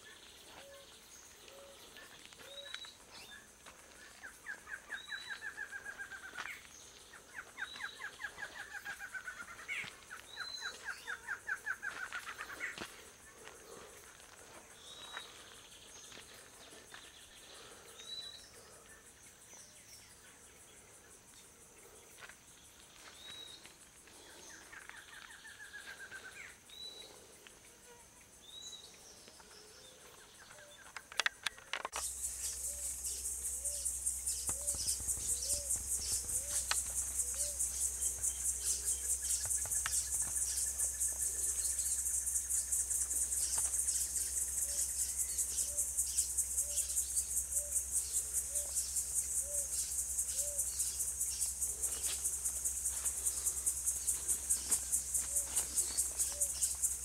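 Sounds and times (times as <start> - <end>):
faint bird chirps: 0.0 - 14.0, 24.5 - 52.4
insect chorus pulsing buzz: 0.0 - 57.0.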